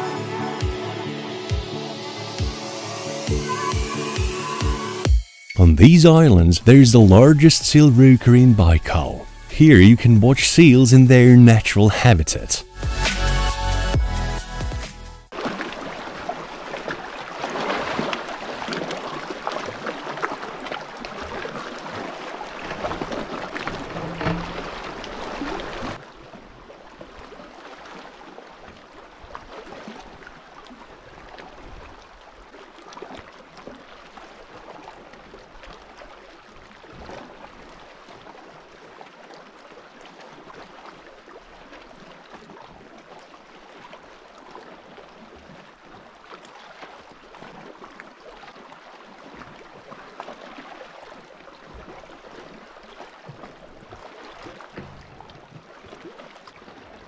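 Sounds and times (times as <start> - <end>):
lake water lapping and splashing: 15.3 - 57.0.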